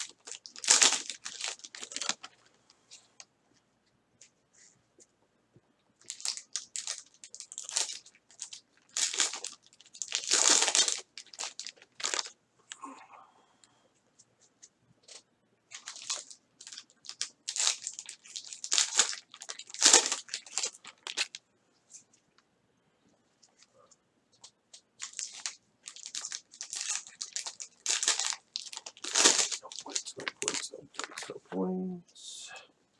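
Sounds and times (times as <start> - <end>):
foil wrappers crinkling and tearing: 0.0 - 2.5, 6.0 - 12.3, 15.1 - 21.4, 25.0 - 31.3
cards rustling: 24.4 - 31.3.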